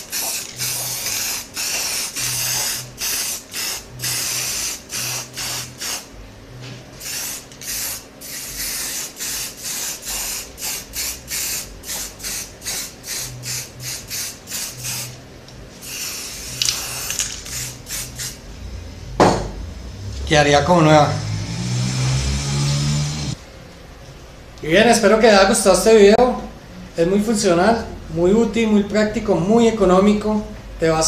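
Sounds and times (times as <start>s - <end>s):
spray paint can hissing: 0.0s - 6.1s, 7.0s - 15.2s, 15.8s - 18.4s.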